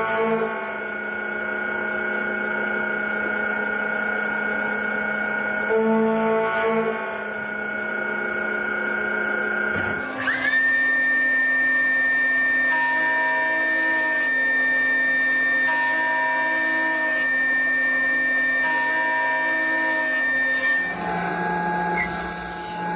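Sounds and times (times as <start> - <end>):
cnc machine running: 0.0 - 22.9
milling spindle high whine: 7.2 - 22.9.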